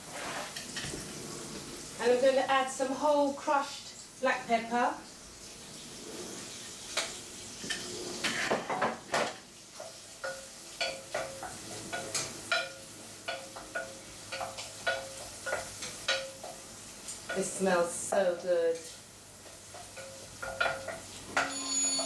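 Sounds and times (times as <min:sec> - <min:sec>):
onions and garlic sizzling in a pot: 0:00.0 - 0:22.0
spoon clinking against metal pot: 0:20.0 - 0:22.0.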